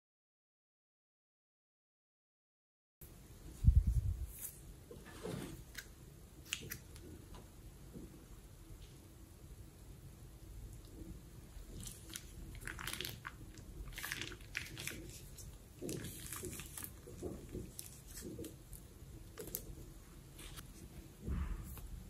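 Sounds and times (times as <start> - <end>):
slime squelching: 10.8 - 20.6
plastic bag crinkling: 11.7 - 19.8.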